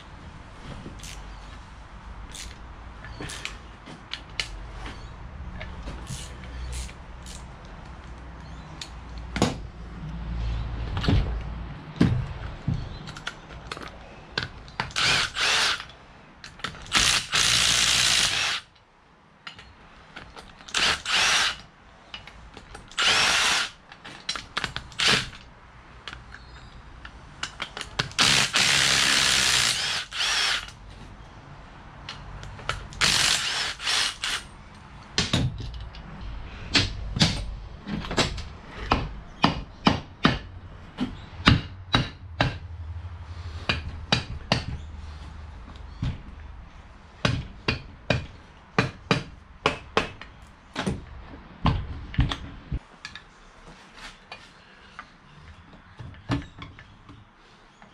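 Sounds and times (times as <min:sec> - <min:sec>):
cordless power driver whirring: 0:15.0 - 0:15.8, 0:20.8 - 0:21.6, 0:23.0 - 0:23.7, 0:28.2 - 0:30.7, 0:33.0 - 0:34.4.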